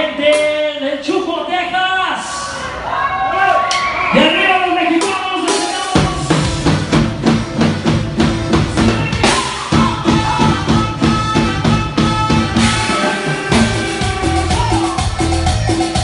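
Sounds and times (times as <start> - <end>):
live band music: 4.9 - 16.0
drum kit played with sticks: 5.0 - 16.0.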